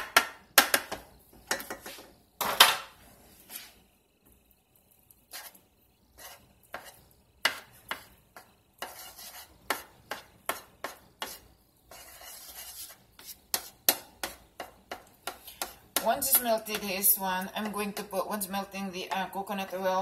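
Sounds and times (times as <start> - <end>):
spoon scraping metal skillet: 0.0 - 3.8, 5.3 - 18.8.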